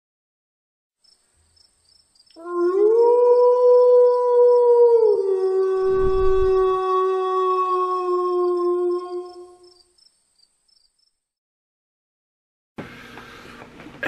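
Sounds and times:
wolf howling: 2.4s - 9.7s.

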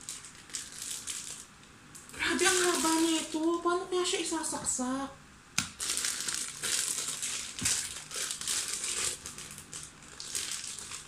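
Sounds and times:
plastic bag crinkling: 0.0s - 1.5s, 2.1s - 3.6s, 5.7s - 11.0s.

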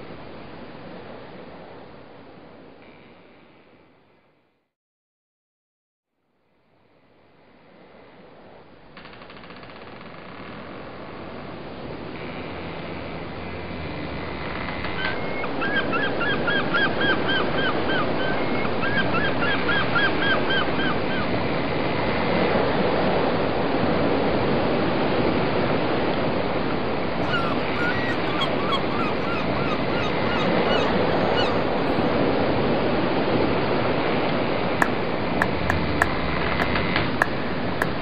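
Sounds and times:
wind and water rushing: 21.3s - 38.0s.

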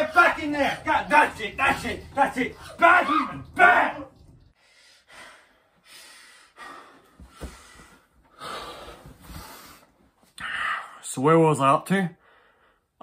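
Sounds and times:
man breathing heavily: 4.6s - 10.9s.

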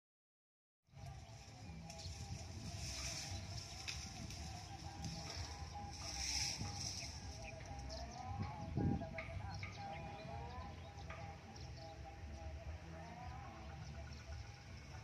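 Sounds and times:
faint wavering tones: 0.9s - 15.0s
bird chirps: 1.0s - 12.4s.

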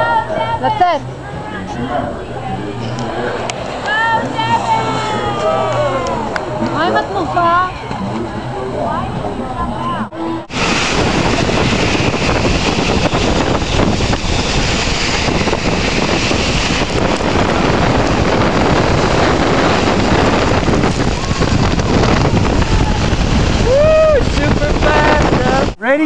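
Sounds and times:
wind buffeting microphone: 0.0s - 26.0s
snow tube sliding on snow: 10.5s - 25.8s.

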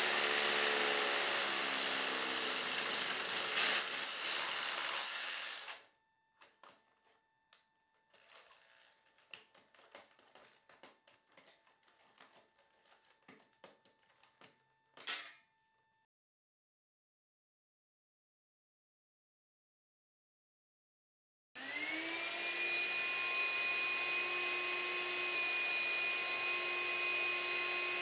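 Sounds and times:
power drill boring into concrete: 0.0s - 5.9s, 21.6s - 28.0s
handling clicks and taps: 9.2s - 15.2s.

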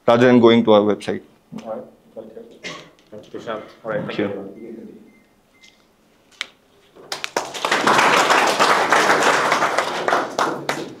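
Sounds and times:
small group clapping: 6.4s - 11.0s.

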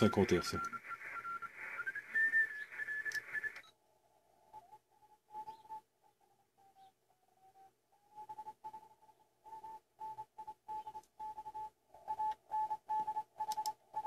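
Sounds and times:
radio band hiss: 0.0s - 3.7s
radio whistling beat tone: 0.0s - 3.7s, 4.4s - 5.9s, 8.1s - 14.0s.

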